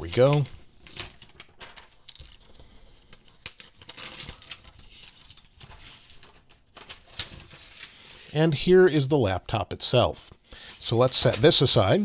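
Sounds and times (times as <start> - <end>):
plastic wrap rustling and crinkling: 0.0 - 8.4.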